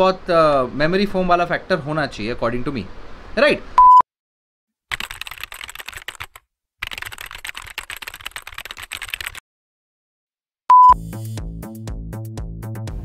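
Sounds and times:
rapid keyboard key clicks: 4.9s - 9.4s.

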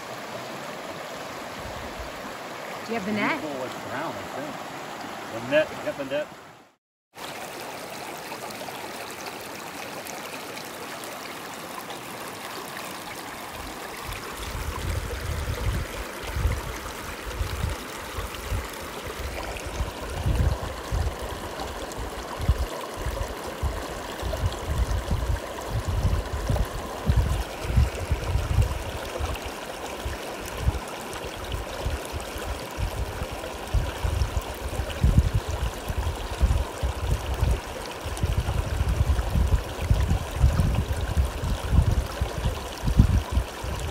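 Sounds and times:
river rushing over rocks: 0.0s - 6.6s.

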